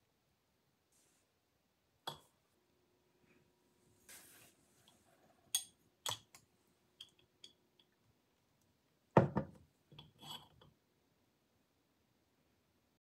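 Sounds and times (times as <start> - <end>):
glass jar knocking on wooden table: 9.2 - 9.6.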